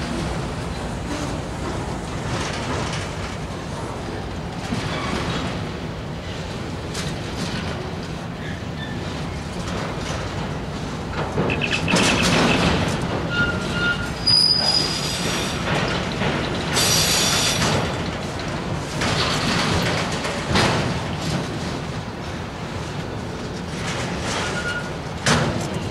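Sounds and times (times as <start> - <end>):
steel wheels rumbling on rail: 0.0 - 25.9
high-pitched wheel squeals: 13.3 - 15.3.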